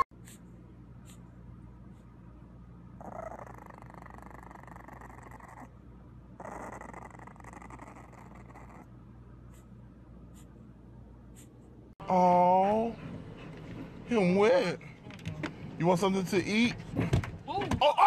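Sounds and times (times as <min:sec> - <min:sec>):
puppy growling: 0:03.0 - 0:05.8, 0:06.4 - 0:08.9.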